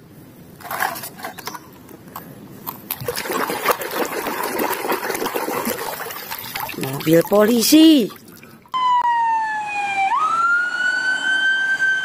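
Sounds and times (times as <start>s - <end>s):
water splashing and sloshing: 2.6s - 8.8s.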